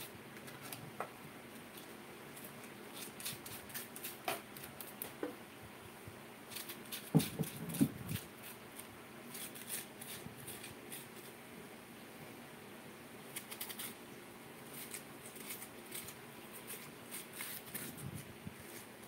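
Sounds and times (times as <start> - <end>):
spoon scraping potato: 6.5 - 11.4, 14.7 - 18.9.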